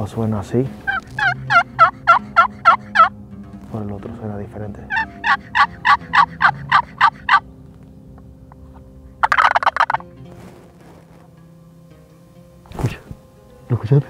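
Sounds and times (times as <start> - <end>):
turkey box call yelps: 0.9 - 3.1, 4.9 - 7.4, 9.2 - 10.0.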